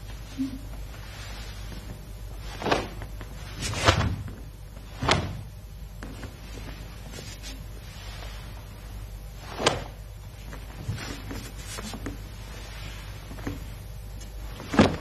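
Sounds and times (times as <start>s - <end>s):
low steady hum: 0.0s - 15.0s
bare foot thudding on mat: 2.5s - 7.6s
cloth uniform snapping: 9.5s - 10.0s.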